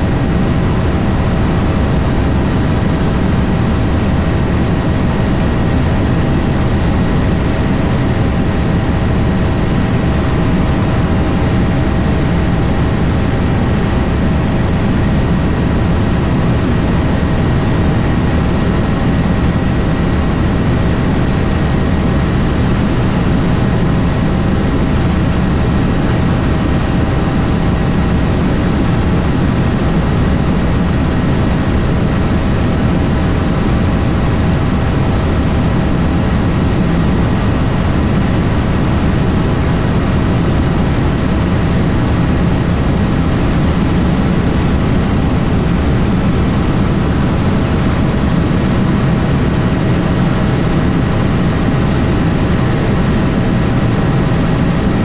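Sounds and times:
helicopter rotor and engine drone: 0.0s - 55.0s
high steady whine: 0.0s - 55.0s.

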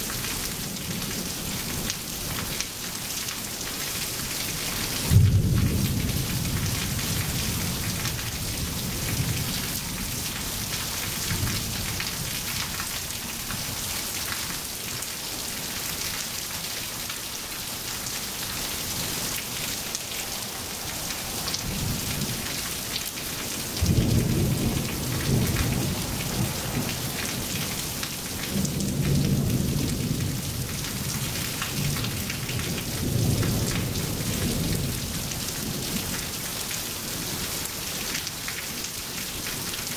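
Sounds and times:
rain on wet pavement: 0.0s - 39.9s
rolling thunder: 5.1s - 9.8s, 19.0s - 31.2s.

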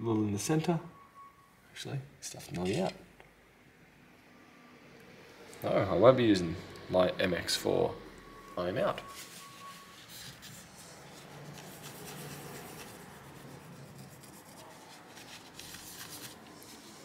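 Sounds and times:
tissue paper rubbing circuit board: 9.0s - 17.0s.

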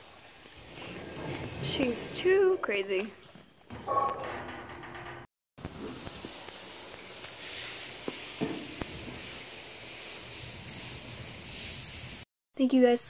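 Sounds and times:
background hiss: 5.6s - 12.3s.

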